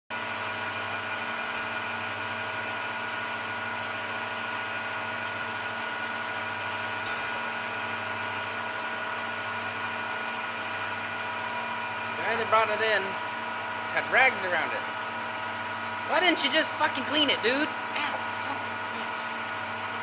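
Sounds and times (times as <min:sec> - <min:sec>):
shop machinery humming: 0:00.1 - 0:20.0.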